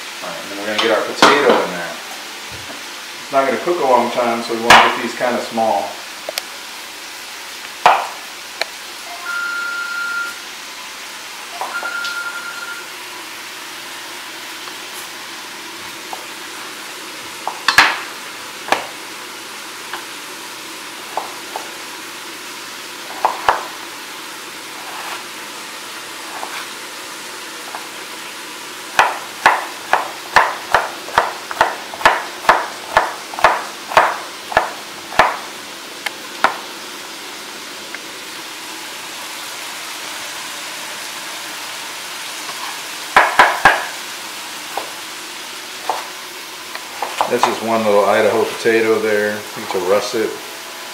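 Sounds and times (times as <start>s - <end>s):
knife chopping on wooden board: 7.8s - 8.2s, 23.1s - 23.7s, 29.0s - 35.4s, 43.2s - 43.9s, 45.8s - 46.1s
steady hiss: 12.7s - 50.9s.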